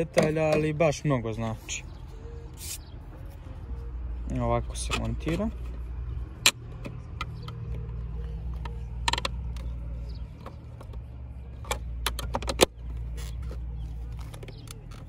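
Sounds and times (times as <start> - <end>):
steady low rumble: 0.7 - 15.0.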